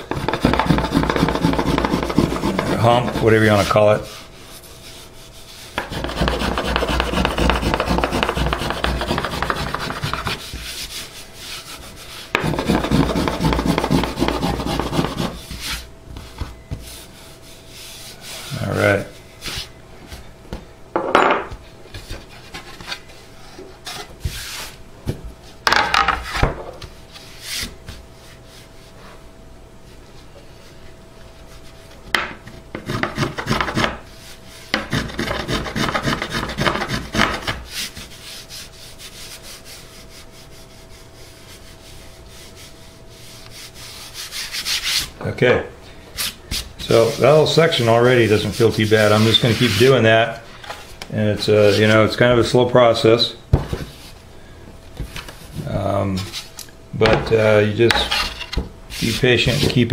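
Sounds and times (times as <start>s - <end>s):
finger plane shaving wood: 0.1s - 3.8s, 5.8s - 10.8s, 12.4s - 15.8s, 32.8s - 34.0s, 34.8s - 37.6s.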